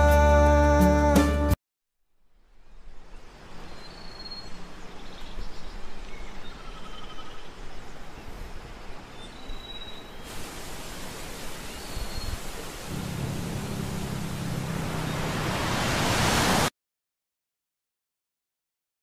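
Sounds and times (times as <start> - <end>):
wind: 2.1 - 16.7
sea surf: 10.3 - 16.7.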